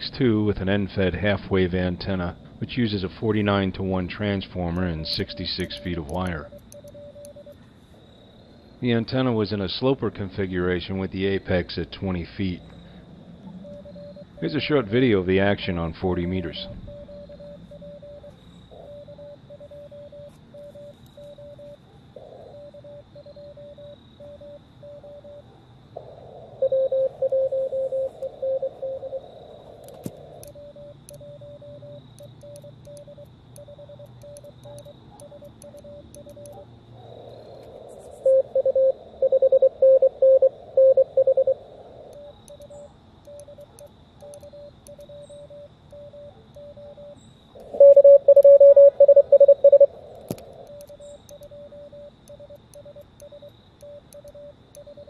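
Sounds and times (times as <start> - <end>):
received morse code tones: 3.2 - 7.6, 13.6 - 21.8, 26.6 - 29.2, 38.2 - 50.0, 50.7 - 55.0
morse code sidetone: 3.4 - 7.6, 13.6 - 21.8, 22.4 - 25.4, 26.6 - 29.2, 30.4 - 36.6, 38.2 - 50.0, 50.7 - 55.0.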